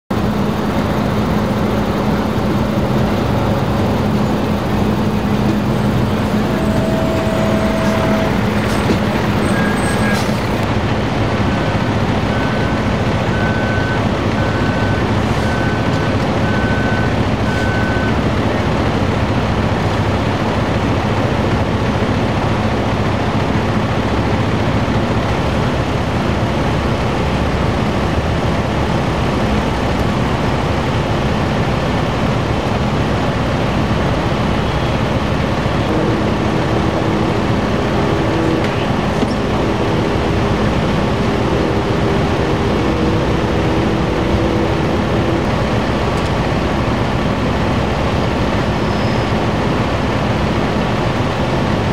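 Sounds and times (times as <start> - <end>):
heavy engine humming: 0.1 - 51.9
short high beeps: 6.1 - 10.6.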